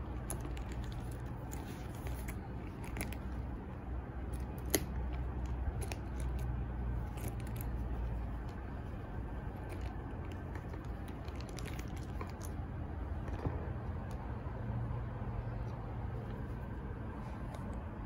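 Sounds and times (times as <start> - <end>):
leather bag handling clicks and rubbing: 0.0 - 3.5, 4.2 - 13.5
steady low hum: 0.0 - 18.0.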